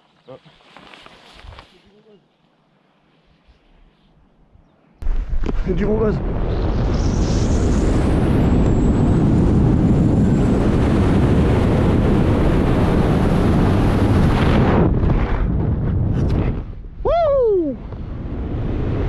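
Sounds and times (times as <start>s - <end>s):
airflow roaring over microphone: 6.3s - 16.9s.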